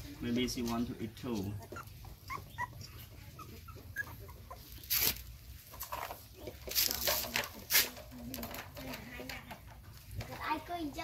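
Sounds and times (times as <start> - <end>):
scuffling noises: 0.3 - 8.4
puppies whimpering: 0.9 - 5.1.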